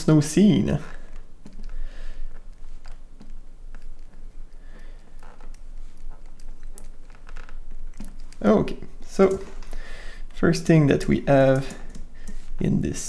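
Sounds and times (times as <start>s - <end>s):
faint room noise: 0.0s - 13.0s
keyboard and mouse clicks: 1.1s - 4.3s, 11.3s - 12.5s.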